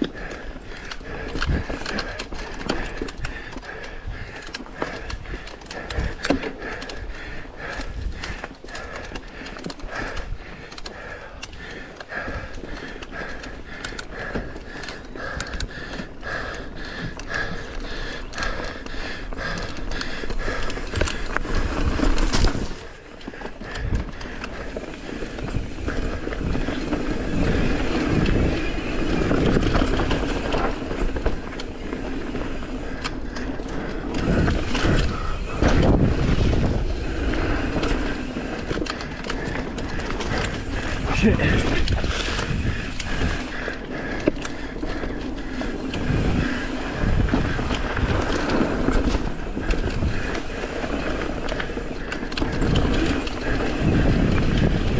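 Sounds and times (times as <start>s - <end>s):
bike knocking and rattling: 0.0s - 54.9s
bike tyres on dirt and leaves: 0.0s - 54.9s.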